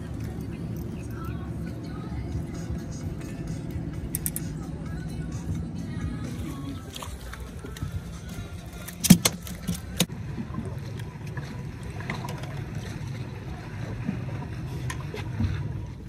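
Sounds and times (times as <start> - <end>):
low rumble of wind and water: 0.0 - 16.0
water splashes: 5.4 - 16.0
sharp knocks on boat: 9.0 - 10.0.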